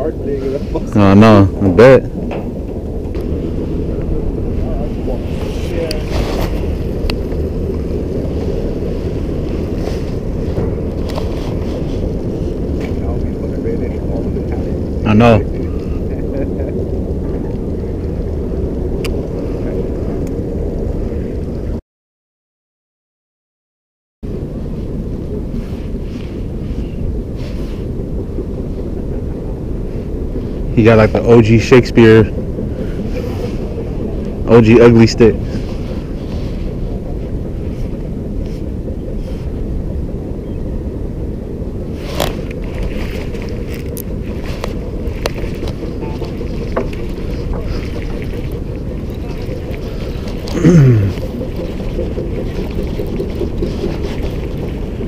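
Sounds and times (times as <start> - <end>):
wind buffeting microphone: 0.0 - 21.8, 24.2 - 55.0
clothing rubbing on camera: 8.4 - 13.0.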